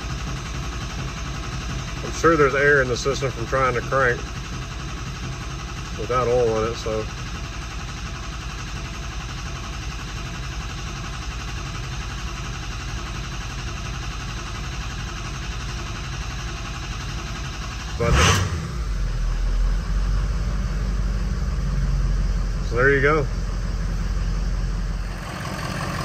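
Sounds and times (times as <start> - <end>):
diesel engine cranking: 0.0 - 26.0
diesel engine running: 0.0 - 26.0.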